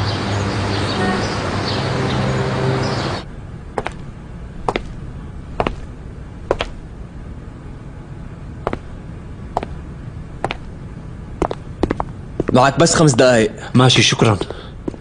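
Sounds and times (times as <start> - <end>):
background music: 0.2 - 3.2
footsteps on a hard floor: 3.8 - 4.0, 4.7 - 5.0, 5.6 - 5.9, 11.4 - 12.6.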